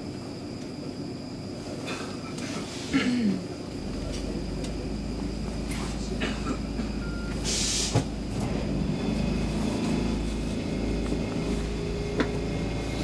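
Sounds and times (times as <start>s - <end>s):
low hum of train equipment: 0.0s - 13.0s
short hiss: 7.5s - 8.0s.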